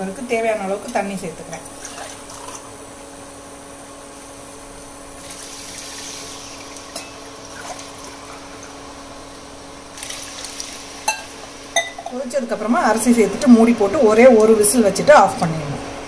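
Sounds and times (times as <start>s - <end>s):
water pouring into a pot: 5.2s - 8.8s, 9.9s - 11.6s.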